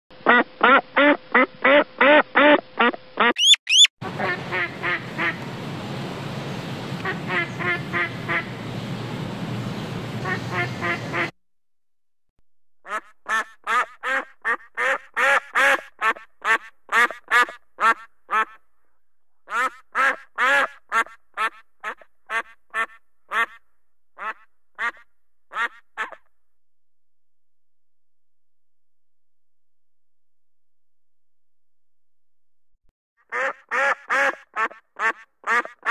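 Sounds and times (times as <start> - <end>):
duck quacking: 0.2 - 5.4, 7.0 - 8.5, 10.2 - 11.3, 12.8 - 18.6, 19.5 - 23.6, 24.2 - 26.3, 33.2 - 35.9
ducks quacking: 0.2 - 5.4, 7.0 - 8.5, 10.2 - 11.3, 33.2 - 35.9
quick rising whistles: 3.4 - 3.9.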